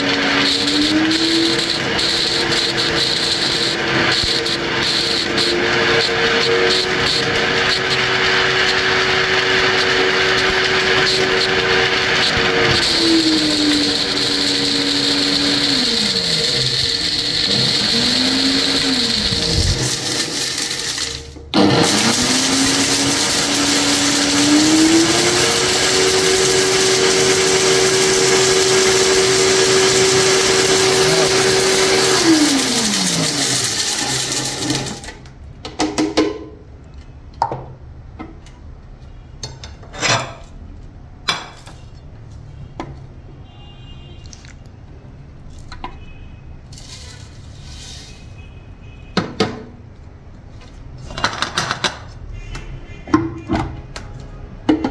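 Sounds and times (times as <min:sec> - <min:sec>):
blender motor whining: 0:00.0 - 0:35.2
plastic toys rattling in blender: 0:12.2 - 0:26.8.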